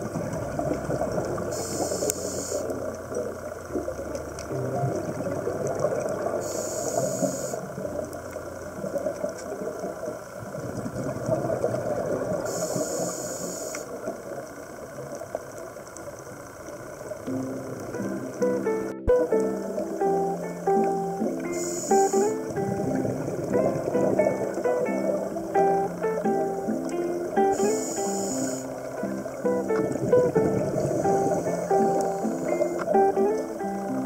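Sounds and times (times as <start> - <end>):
bubbling exhaust underwater: 0.0 - 34.0
regulator inhalation hiss: 1.4 - 2.9, 6.4 - 7.9, 12.4 - 14.1, 21.4 - 22.6, 26.2 - 29.0, 30.6 - 33.0.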